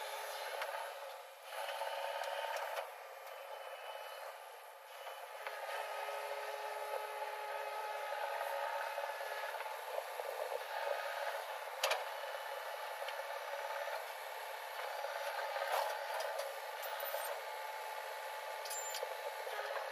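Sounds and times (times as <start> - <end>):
diesel engine under hydraulic load: 0.0 - 19.9.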